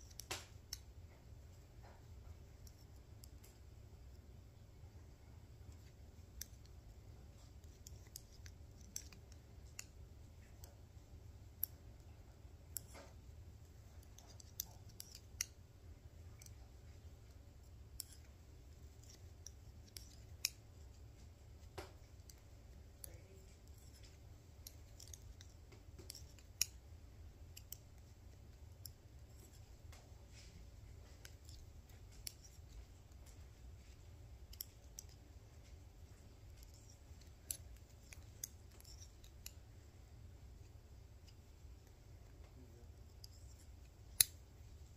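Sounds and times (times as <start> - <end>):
knitting needles clicking: 0.0 - 44.9
low steady hum: 0.0 - 44.9.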